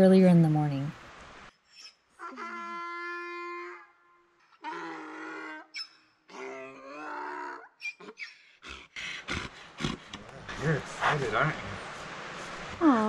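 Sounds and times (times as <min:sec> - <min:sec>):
donkey braying: 0:01.8 - 0:10.3.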